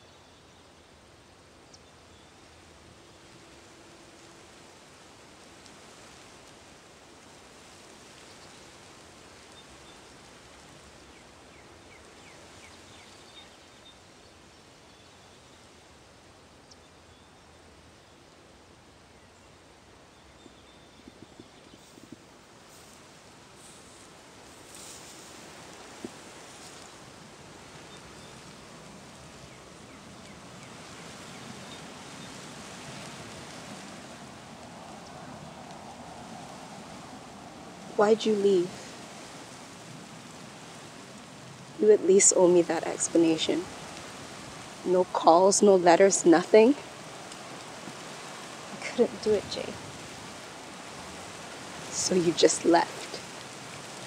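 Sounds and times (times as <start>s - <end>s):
wind through long grass: 0.0s - 54.0s.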